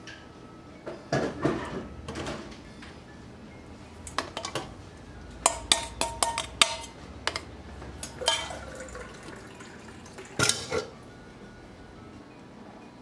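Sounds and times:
metal spoon scraping a bowl: 0:05.4 - 0:08.6
spoon clinking against a bowl: 0:05.4 - 0:09.0
eggs pouring into a bowl: 0:08.2 - 0:10.4.

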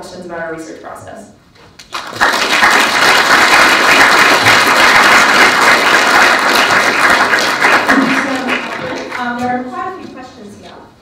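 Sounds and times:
audience applause: 0:01.9 - 0:09.4.

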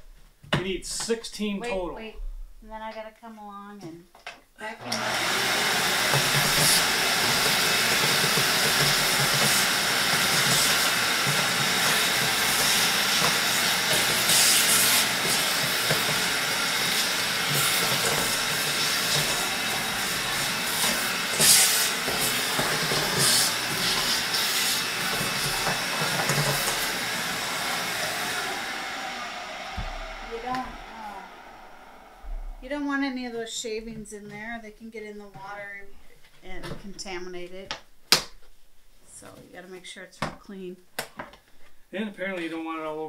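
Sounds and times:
vacuum cleaner running: 0:04.8 - 0:32.9.

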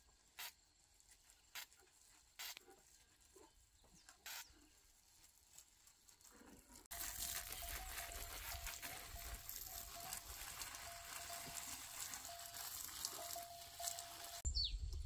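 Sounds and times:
water spraying from garden hose: 0:01.4 - 0:02.6, 0:06.5 - 0:14.5
water pattering on plants: 0:06.9 - 0:14.5.

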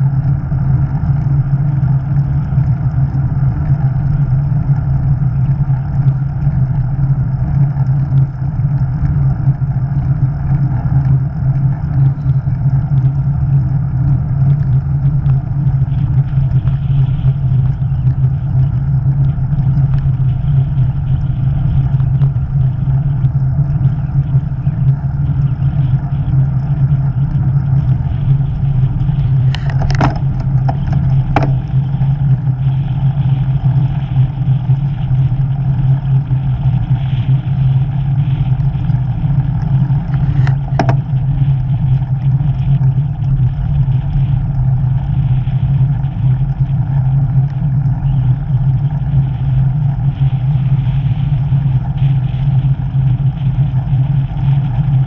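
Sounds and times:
road and wind rumble: 0:00.0 - 0:55.0
vehicle engine running: 0:00.0 - 0:55.0
sharp knocks: 0:29.7 - 0:31.6, 0:40.7 - 0:41.0.

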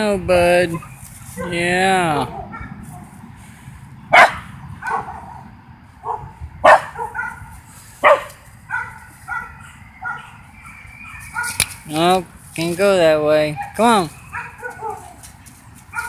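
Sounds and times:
dog barking: 0:02.2 - 0:03.1, 0:04.1 - 0:11.6, 0:13.5 - 0:15.2
dog yapping: 0:02.3 - 0:02.8, 0:04.1 - 0:05.4, 0:06.0 - 0:11.8, 0:13.6 - 0:15.2.

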